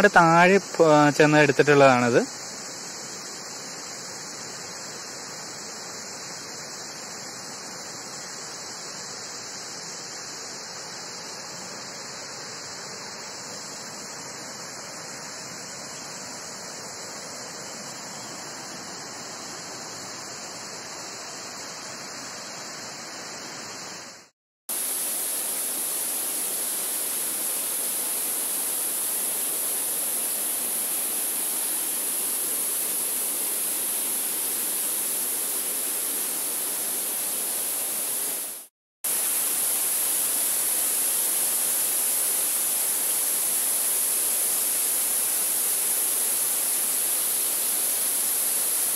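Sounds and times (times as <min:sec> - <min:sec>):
high hiss: 0:00.0 - 0:48.9
waterfall splashing over rocks: 0:23.7 - 0:48.9.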